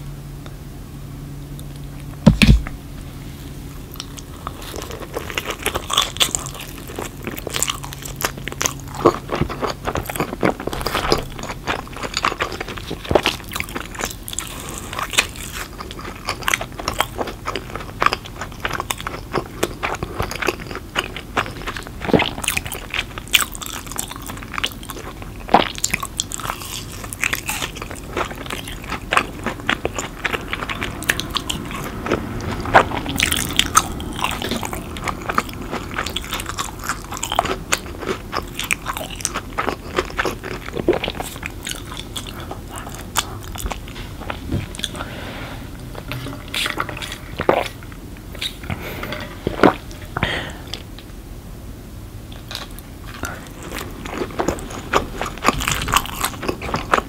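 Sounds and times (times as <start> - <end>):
chewing crunchy food: 1.5 - 51.1, 52.3 - 57.0
loud thump: 2.2 - 2.8, 10.7 - 12.1.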